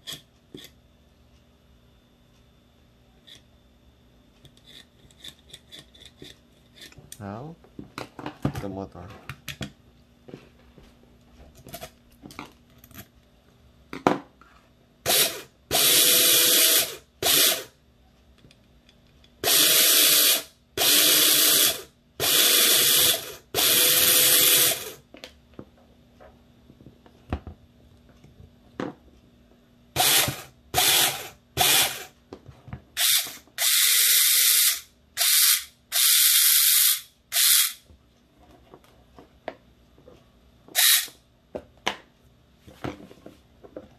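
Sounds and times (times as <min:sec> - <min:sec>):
electric motor whirring bursts: 0:15.1 - 0:17.7, 0:19.4 - 0:25.0, 0:30.0 - 0:32.1, 0:33.0 - 0:37.8, 0:40.8 - 0:41.2.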